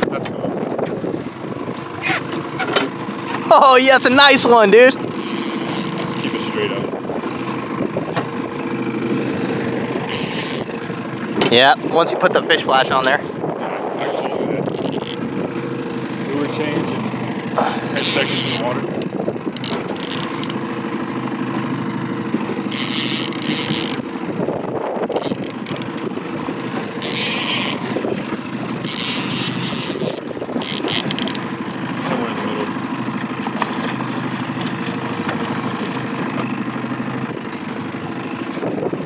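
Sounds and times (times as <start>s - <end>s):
boat engine humming: 0.0s - 39.0s.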